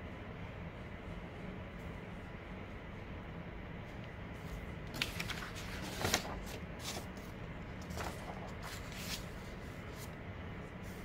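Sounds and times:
paper rustling and crinkling: 0:04.4 - 0:10.2.

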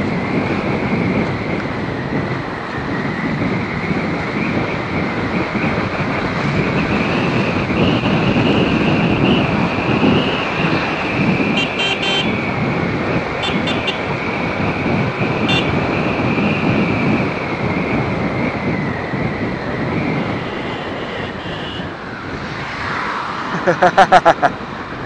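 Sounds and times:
road traffic: 0:00.0 - 0:25.0
short horn beeps: 0:11.6 - 0:12.3, 0:13.4 - 0:14.0, 0:15.5 - 0:15.7, 0:20.4 - 0:21.9.

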